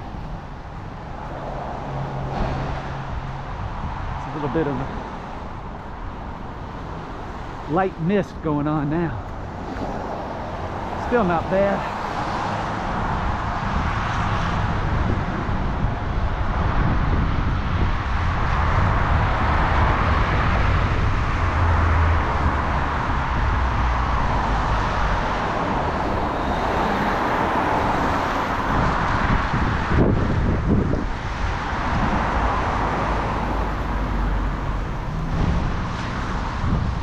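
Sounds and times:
cars passing on wet road: 0.0 - 37.0.

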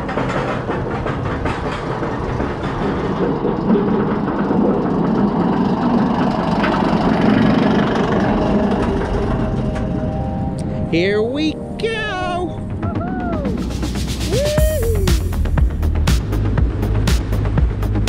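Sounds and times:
faint clatter: 0.0 - 10.2
roller coaster rumbling on track: 0.0 - 18.0.

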